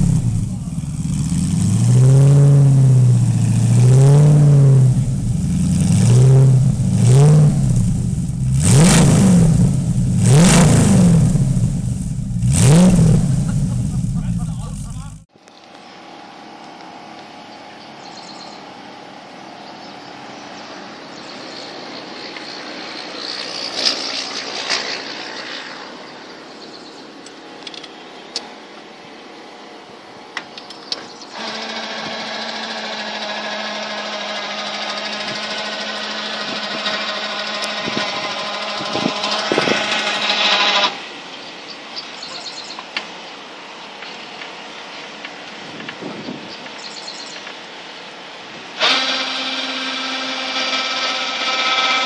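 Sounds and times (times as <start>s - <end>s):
electric motor whining: 31.3s - 41.2s, 48.4s - 52.0s.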